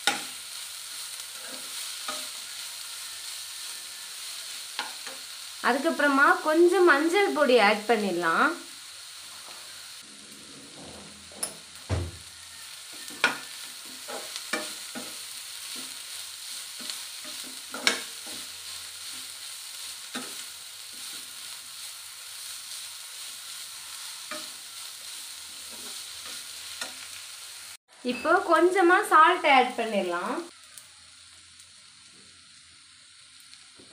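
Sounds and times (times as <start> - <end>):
spatula scraping a pan: 0.0 - 5.4, 9.2 - 27.4
low sizzle: 0.0 - 33.9.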